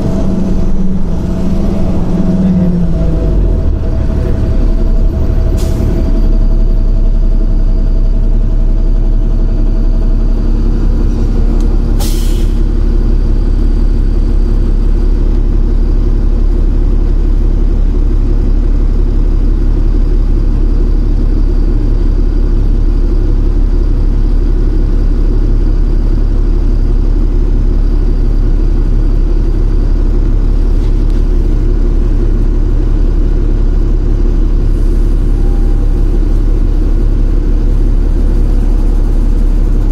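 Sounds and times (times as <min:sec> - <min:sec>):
bus diesel engine running: 0:00.0 - 0:39.9
short air hisses: 0:12.0 - 0:12.7.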